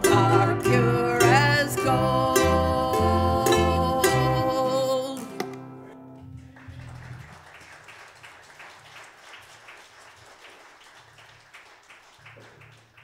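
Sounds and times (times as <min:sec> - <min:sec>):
people clapping: 0:06.2 - 0:13.0.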